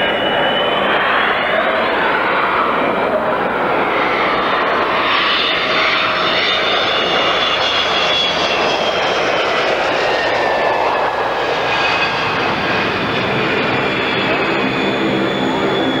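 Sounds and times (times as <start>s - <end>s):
jet engine roar with whine: 0.0s - 16.0s.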